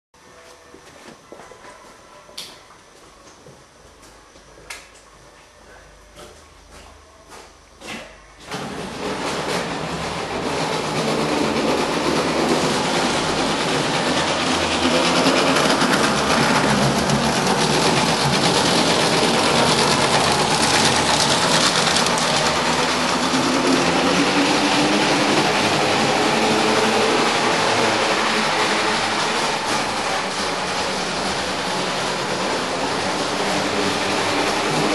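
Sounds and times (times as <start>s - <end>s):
model tram running on track: 8.5s - 34.9s.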